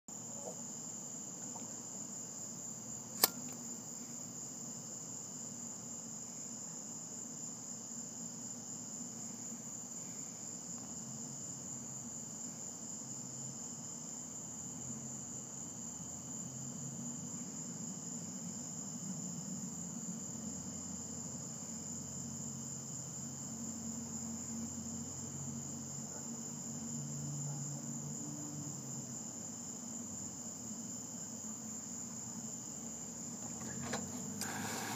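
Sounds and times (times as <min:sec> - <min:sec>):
crickets chirping: 0:00.1 - 0:34.9
sharp click: 0:03.2 - 0:03.6.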